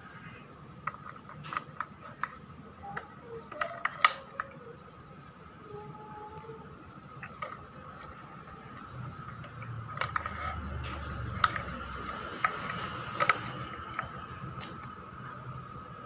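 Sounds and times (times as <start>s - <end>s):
faint steady high tone: 2.0s - 8.8s.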